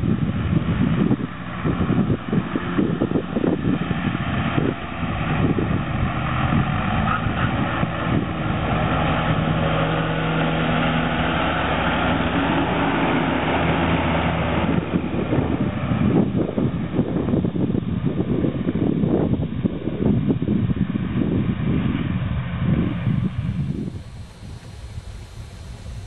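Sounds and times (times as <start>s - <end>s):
mower cutting grass: 0.0s - 16.7s, 23.0s - 26.0s
tractor engine running: 0.0s - 26.0s
wind rumble on microphone: 0.0s - 26.0s.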